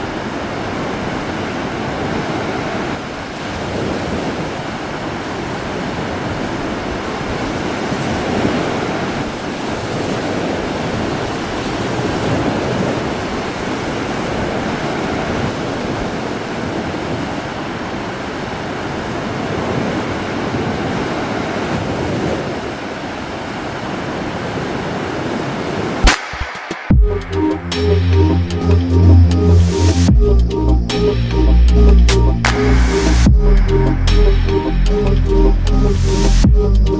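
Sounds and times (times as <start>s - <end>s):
ocean surf breaking on beach: 0.0s - 26.8s.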